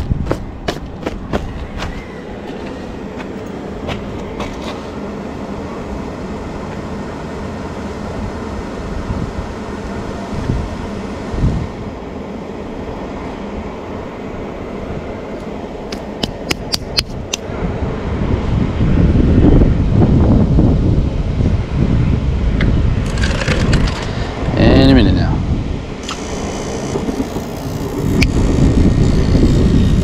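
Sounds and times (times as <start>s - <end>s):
sharp clicks: 15.9s - 17.4s
gas unit motor running: 21.0s - 24.9s, 25.5s - 30.0s.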